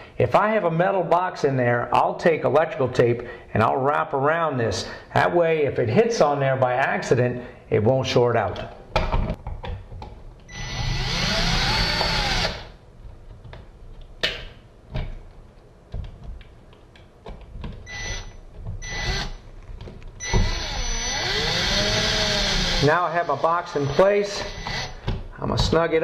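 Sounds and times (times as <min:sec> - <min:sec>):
cordless drill whining: 0:10.5 - 0:12.8, 0:17.9 - 0:19.4, 0:20.2 - 0:25.1.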